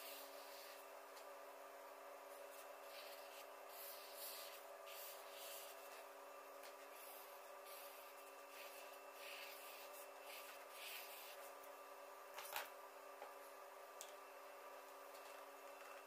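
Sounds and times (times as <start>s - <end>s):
marker scratching on paper: 0.0s - 0.8s, 2.8s - 6.0s, 6.9s - 11.5s
faint steady hum: 0.0s - 16.0s.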